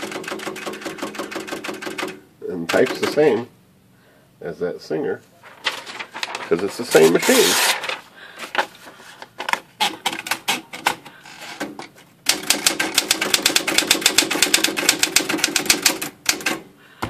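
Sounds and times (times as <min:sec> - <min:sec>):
paper feeding clicks: 0:00.0 - 0:03.4, 0:05.4 - 0:16.7
typewriter typing: 0:00.0 - 0:03.4, 0:05.5 - 0:08.0, 0:09.5 - 0:11.0, 0:11.6 - 0:16.7.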